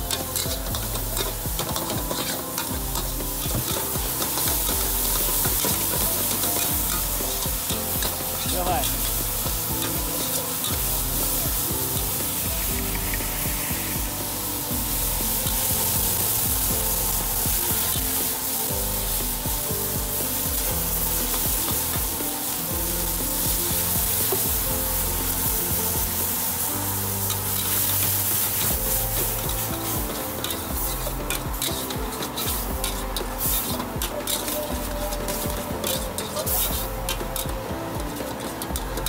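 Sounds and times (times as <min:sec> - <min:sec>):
metal spatula scraping wok: 0:00.0 - 0:37.4
food sizzling: 0:00.0 - 0:39.0
water poured into hot pan: 0:00.0 - 0:39.0
spatula clattering against wok: 0:00.1 - 0:08.4.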